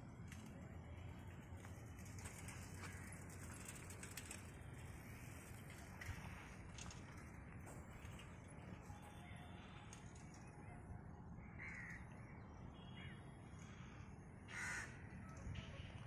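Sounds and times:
crow cawing: 0:11.4 - 0:12.1, 0:13.0 - 0:15.2.

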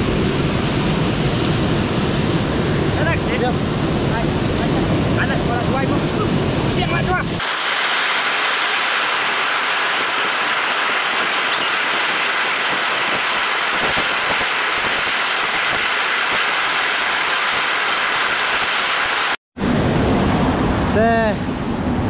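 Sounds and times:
waterfall rushing: 0:07.4 - 0:19.4.

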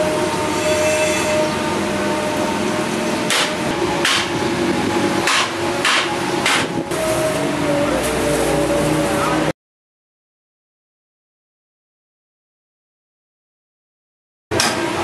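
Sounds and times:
hammer blows on metal: 0:03.3 - 0:04.4.

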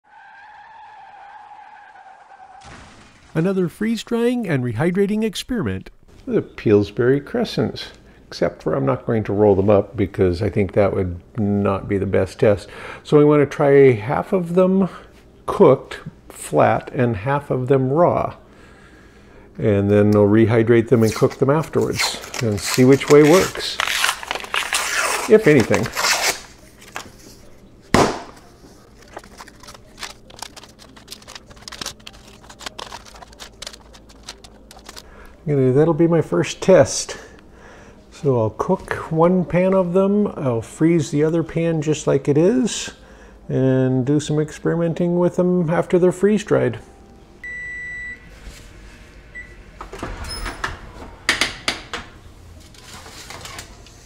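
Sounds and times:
dough crinkling: 0:20.9 - 0:35.3
oven door opening: 0:49.8 - 0:53.8.

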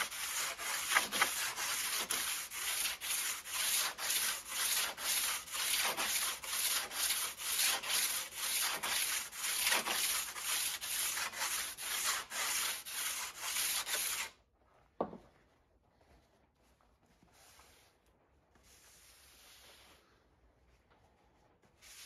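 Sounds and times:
sandpaper rubbing on steel blade: 0:00.0 - 0:14.4.

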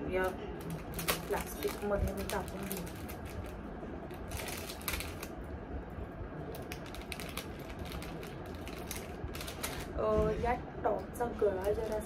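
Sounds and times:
plastic bag crinkling: 0:00.1 - 0:05.4, 0:06.5 - 0:10.0, 0:11.6 - 0:12.0.

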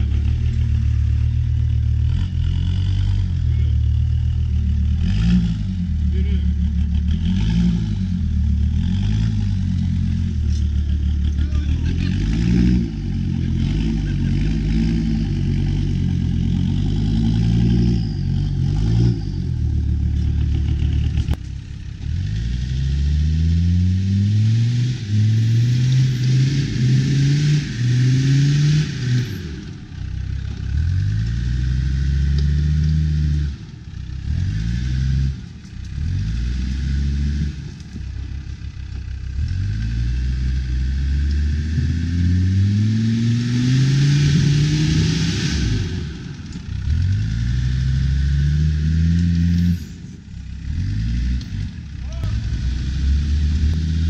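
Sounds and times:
off-road vehicle engine revving: 0:00.0 - 0:54.0.

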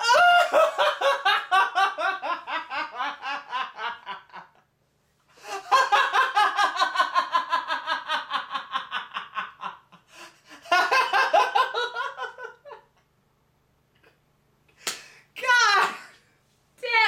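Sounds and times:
man laughing hard: 0:00.0 - 0:04.6, 0:05.4 - 0:12.9.

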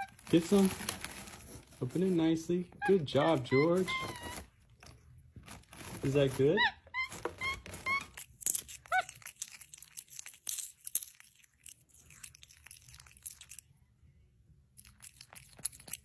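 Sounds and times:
monkey squeak: 0:02.8 - 0:04.5, 0:06.4 - 0:09.7
monkey chewing popcorn: 0:02.8 - 0:13.9, 0:14.6 - 0:16.0.

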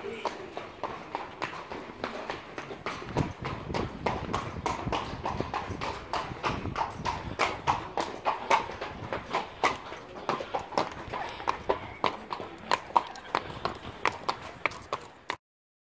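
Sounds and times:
horse hooves clip-clopping: 0:00.0 - 0:15.4.

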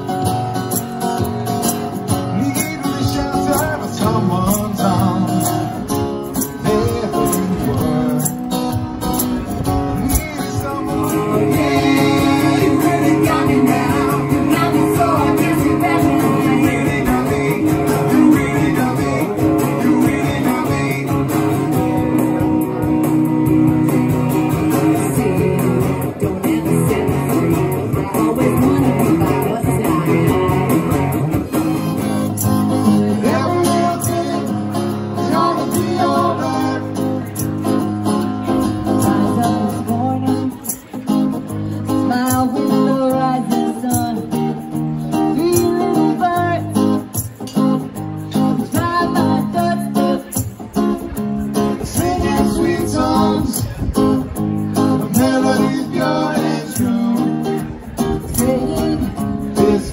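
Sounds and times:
acoustic guitar strumming: 0:00.0 - 0:59.9
people singing: 0:10.0 - 0:21.8, 0:24.7 - 0:30.5, 0:32.8 - 0:37.4, 0:51.8 - 0:53.9, 0:54.9 - 0:59.9.

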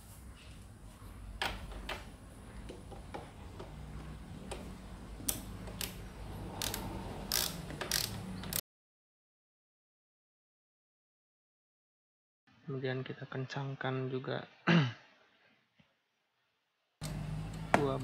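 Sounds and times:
ratchet wrench clicking: 0:06.6 - 0:08.6.

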